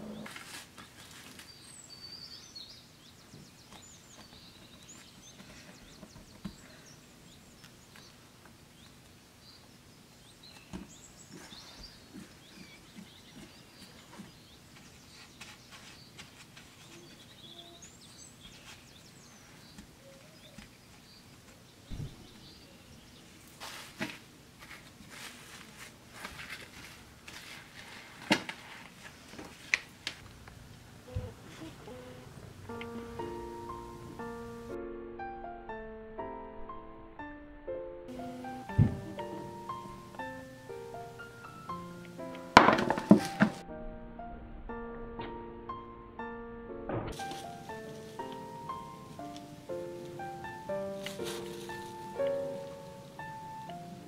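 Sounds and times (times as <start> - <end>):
faint high chirps: 16.9 - 18.0
plastic wrap rustling: 23.4 - 30.3, 47.1 - 48.6, 50.8 - 52.9.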